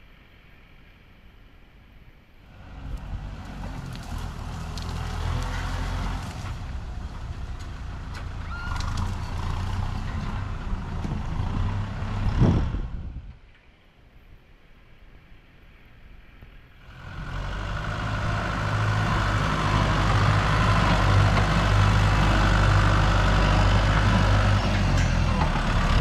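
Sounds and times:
heavy machine engine running: 2.5s - 13.2s, 16.8s - 26.0s.

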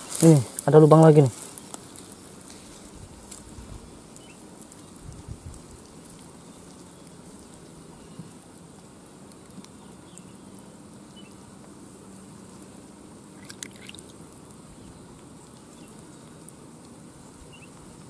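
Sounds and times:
water trickling and dripping: 13.4s - 14.2s
wet clicks in mud: 13.4s - 14.2s.

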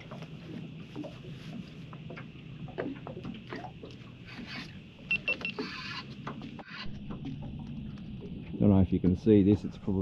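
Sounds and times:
steady low hum: 0.0s - 10.0s
short squeaky animal calls: 5.4s - 6.1s.

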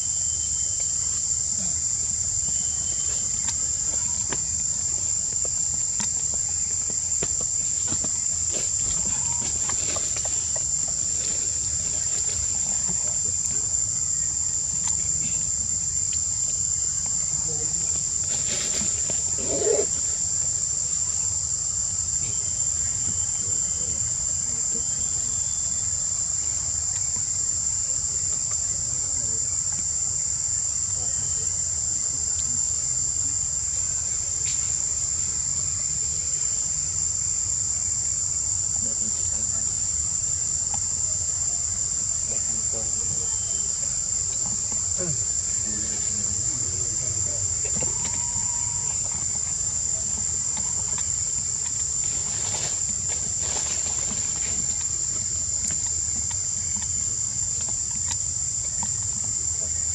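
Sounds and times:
insect chorus drone: 0.0s - 59.9s.

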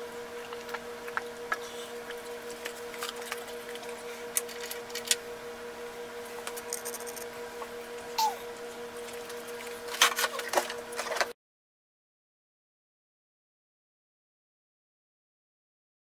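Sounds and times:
electrical hum: 0.0s - 11.4s.

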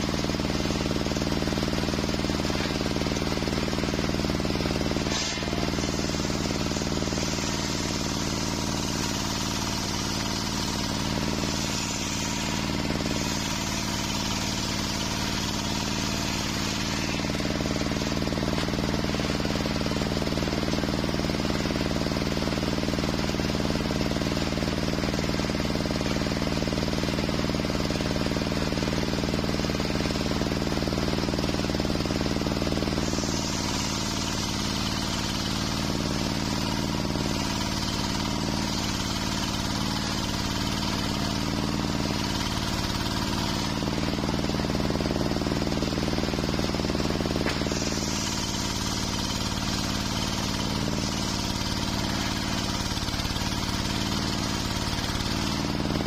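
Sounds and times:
circular saw blade ripping log: 0.0s - 20.4s, 32.5s - 56.0s
saw blade spinning freely: 0.0s - 22.6s, 27.6s - 56.0s.

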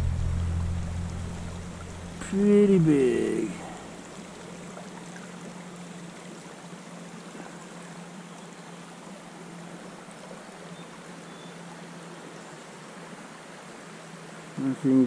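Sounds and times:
low hum: 0.0s - 5.9s
river water running over rocks: 0.0s - 15.0s.

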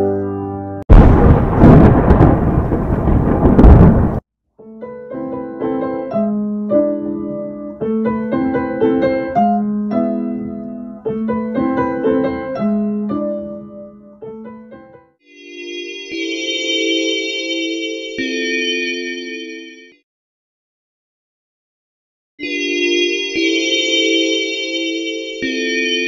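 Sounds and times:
light keyboard music: 0.0s - 0.9s, 4.6s - 20.0s, 22.4s - 26.0s
loud magical crash effect: 0.9s - 4.2s.

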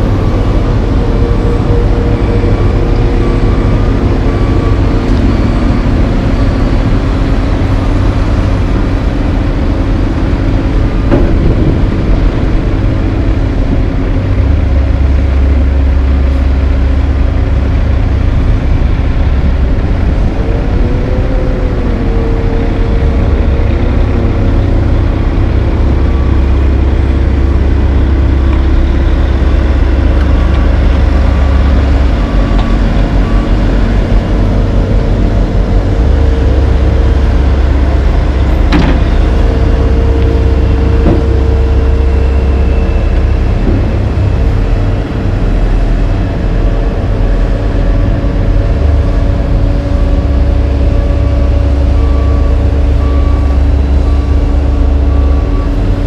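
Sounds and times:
heavy diesel engines rumbling: 0.0s - 56.0s
backup alarm beeping: 50.1s - 56.0s.

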